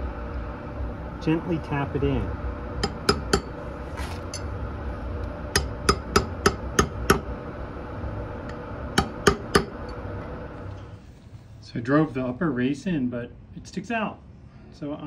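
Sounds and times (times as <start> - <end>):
hammer tapping a steel drift: 2.8 - 3.5, 5.5 - 7.3, 9.0 - 9.8.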